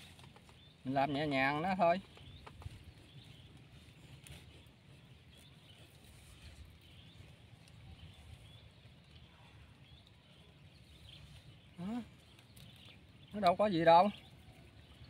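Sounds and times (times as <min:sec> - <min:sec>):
faint bird chirps: 0:00.0 - 0:15.0.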